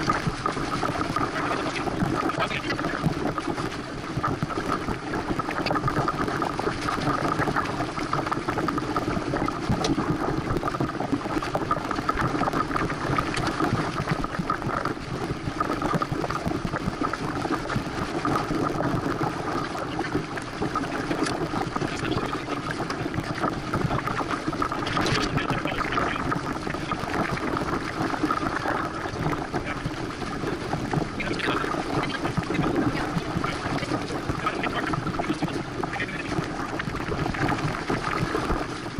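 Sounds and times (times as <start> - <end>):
water rushing along boat hull: 0.0 - 38.9.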